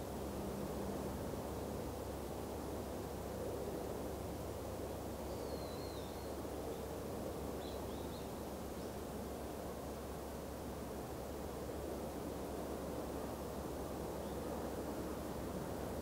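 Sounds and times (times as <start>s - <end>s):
bird chirping: 5.3s - 6.3s.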